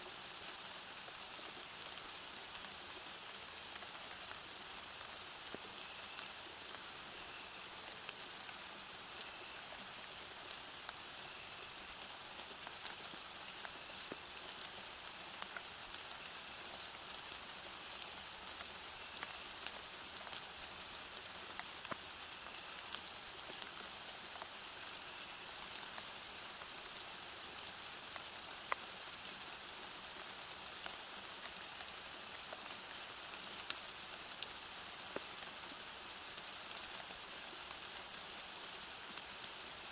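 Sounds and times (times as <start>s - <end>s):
steady rain falling: 0.0s - 39.9s
raindrops ticking: 10.8s - 27.1s.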